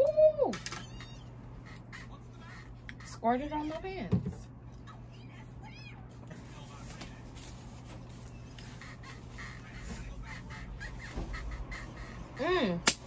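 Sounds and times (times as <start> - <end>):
woman squealing: 0.0 - 2.0, 10.5 - 12.8.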